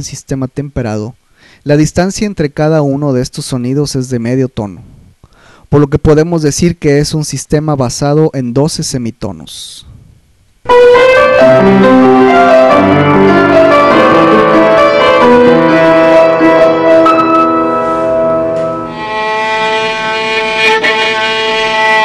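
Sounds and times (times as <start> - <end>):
piano run of notes: 10.7 - 22.0
sustained violin tone: 12.8 - 22.0.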